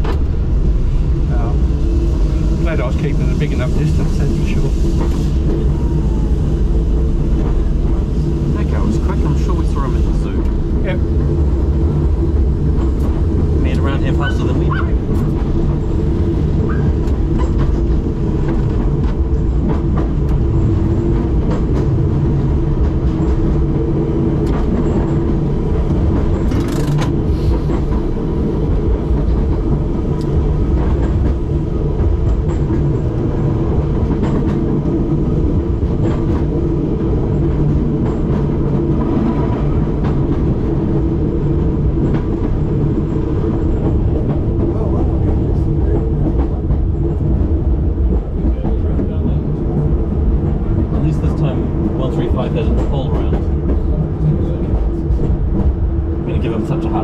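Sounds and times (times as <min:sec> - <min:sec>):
tram rumble and hum: 0:00.0 - 0:57.0
wheels clicking on rails: 0:16.6 - 0:28.0.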